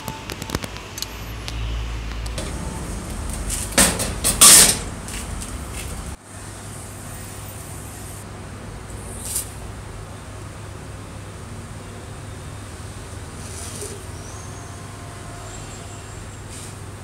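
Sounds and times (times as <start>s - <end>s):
steady low hum: 2.3s - 6.2s
typewriter parts scraping and clattering: 2.4s - 6.0s.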